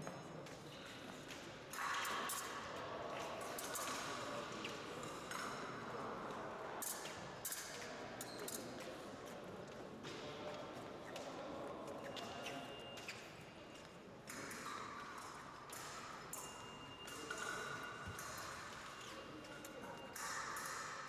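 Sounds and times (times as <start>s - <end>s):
fencing blade taps and clicks: 14.2s - 19.0s, 20.1s - 21.0s.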